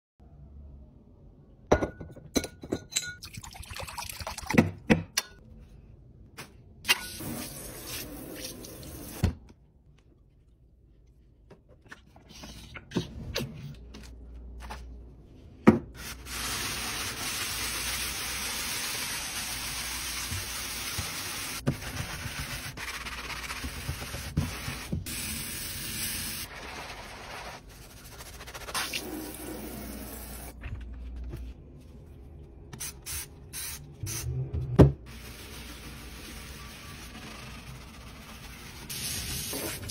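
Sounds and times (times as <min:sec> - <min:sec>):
wet sponge squeezed and rubbed: 0:26.4 - 0:29.4.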